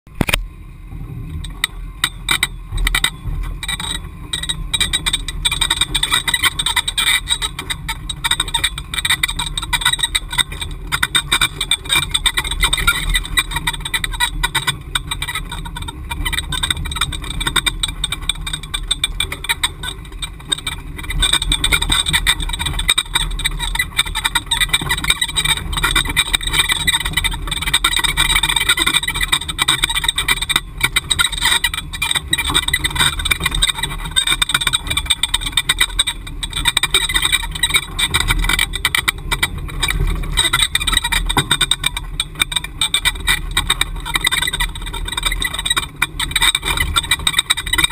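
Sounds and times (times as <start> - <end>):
vehicle engine running: 0.1 - 47.9
vehicle rattling and knocking: 1.4 - 47.9.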